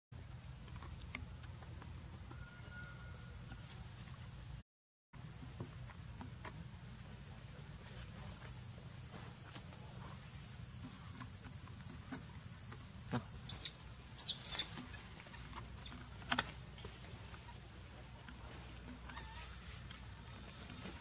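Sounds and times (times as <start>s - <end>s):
high-pitched chirping calls: 13.4s - 16.0s.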